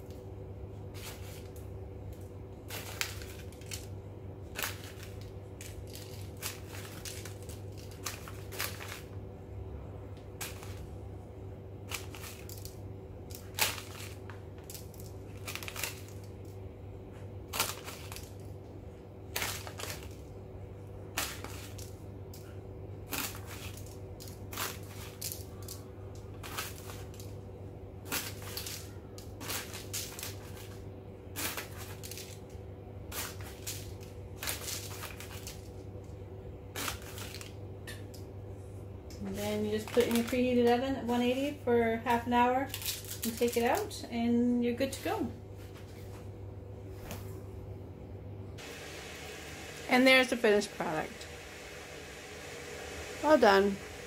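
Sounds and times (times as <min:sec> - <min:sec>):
steady low hum: 0:00.0 - 0:54.0
plastic bag crinkling: 0:01.0 - 0:09.2, 0:11.8 - 0:16.6, 0:17.5 - 0:18.5, 0:19.3 - 0:20.3, 0:33.1 - 0:35.8, 0:36.8 - 0:37.6, 0:39.6 - 0:40.8, 0:42.6 - 0:44.0.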